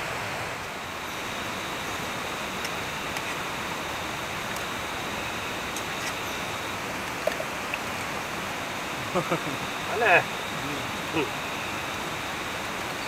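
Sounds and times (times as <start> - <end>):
river water flowing: 0.0 - 13.0
thin high tone: 9.0 - 13.0.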